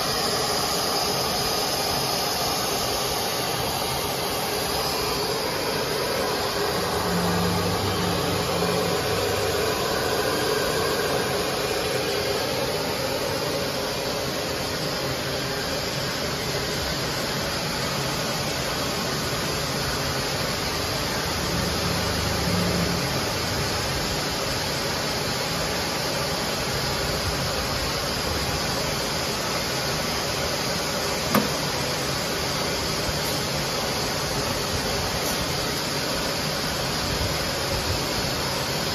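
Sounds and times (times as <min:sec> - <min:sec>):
extrusion machine hiss and hum: 0:00.0 - 0:38.9
sharp click: 0:31.3 - 0:31.6.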